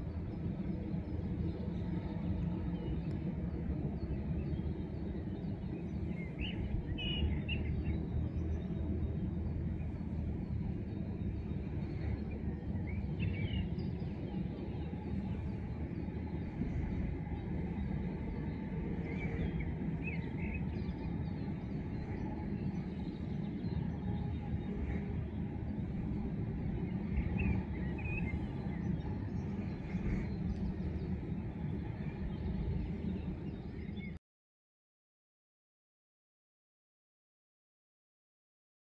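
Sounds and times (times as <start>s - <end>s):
low outdoor rumble: 0.0s - 34.2s
faint bird chirps: 4.0s - 34.2s.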